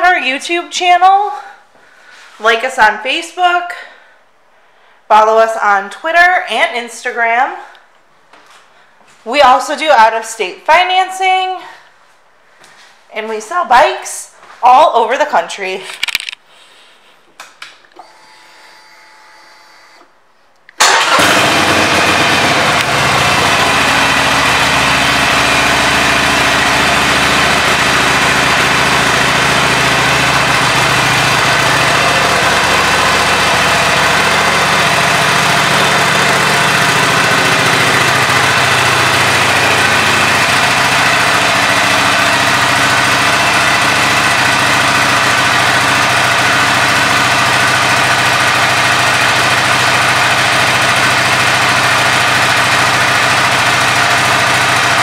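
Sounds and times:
motorcycle engine starting and idling: 0:20.8 - 0:55.0.

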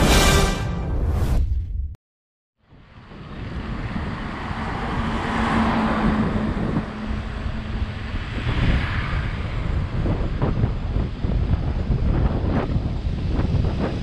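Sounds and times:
road noise: 0:02.6 - 0:14.0
vehicle passing: 0:02.8 - 0:11.4.

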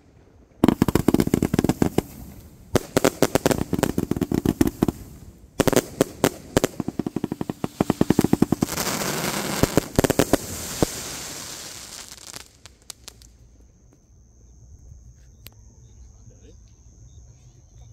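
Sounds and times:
firework launches and bursts: 0:00.0 - 0:13.5
firework stars crackling: 0:00.0 - 0:14.0.

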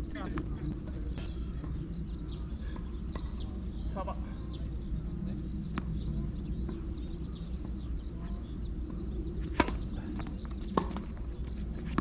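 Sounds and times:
racket hitting tennis ball: 0:09.4 - 0:09.9.

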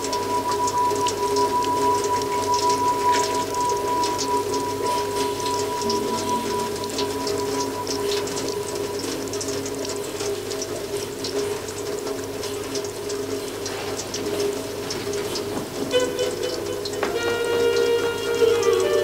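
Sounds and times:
high ringing tone: 0:00.0 - 0:10.8
low drone: 0:00.0 - 0:10.8.

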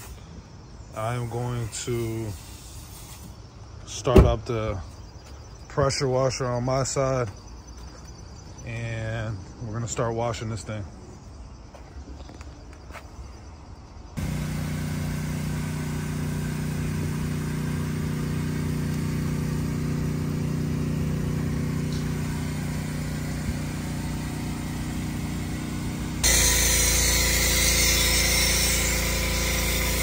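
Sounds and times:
pressure washer spray hiss: 0:01.0 - 0:03.4, 0:14.2 - 0:30.0
small gasoline engine running: 0:14.2 - 0:30.0.

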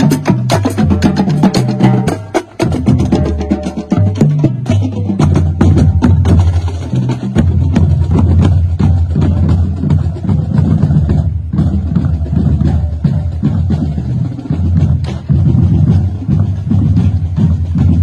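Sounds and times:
marching drumline cadence: 0:00.0 - 0:18.0.

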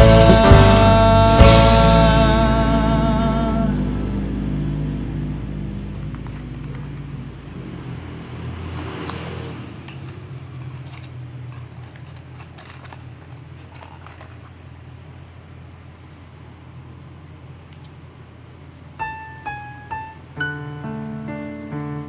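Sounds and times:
low steady hum: 0:00.0 - 0:08.7
cardboard rustle: 0:10.0 - 0:14.7.

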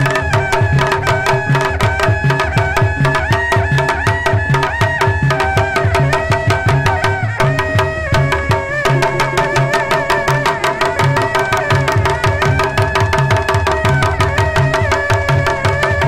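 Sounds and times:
fast drum beat: 0:00.0 - 0:16.0
wavering melody line: 0:00.0 - 0:16.0
repeating bass pattern: 0:04.9 - 0:14.0.

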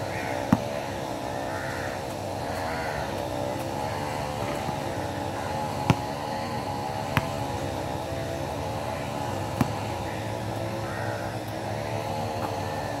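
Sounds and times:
engine-like drone: 0:00.0 - 0:13.0
basketball thuds: 0:00.5 - 0:00.8, 0:05.8 - 0:06.1, 0:07.0 - 0:07.7, 0:09.5 - 0:10.0.

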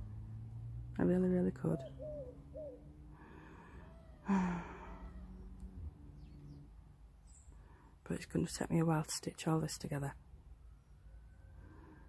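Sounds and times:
woman sighing: 0:04.2 - 0:05.2.

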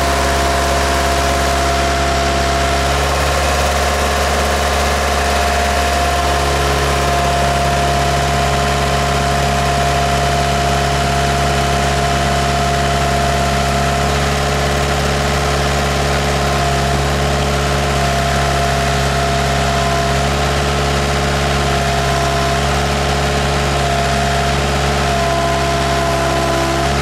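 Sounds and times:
backhoe diesel engine running: 0:00.0 - 0:27.0.

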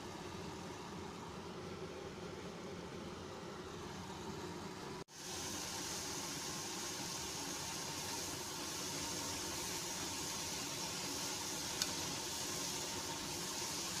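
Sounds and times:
background hum and hiss: 0:00.0 - 0:14.0.

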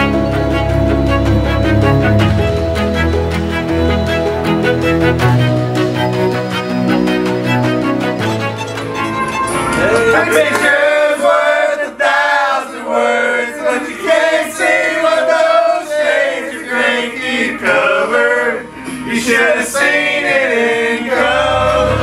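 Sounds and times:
men singing together: 0:09.8 - 0:22.0.

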